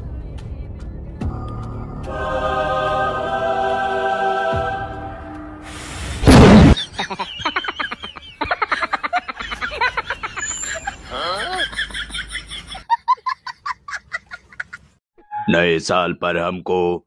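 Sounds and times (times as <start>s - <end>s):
music with long held notes: 1.3s - 5.6s
loud blast: 5.6s - 6.8s.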